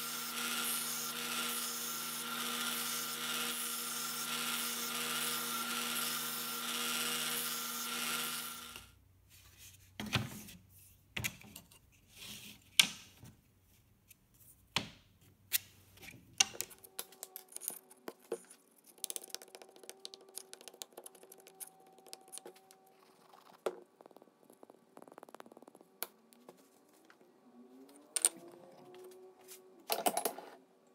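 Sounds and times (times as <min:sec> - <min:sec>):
belt sander humming: 0:00.0 - 0:08.9.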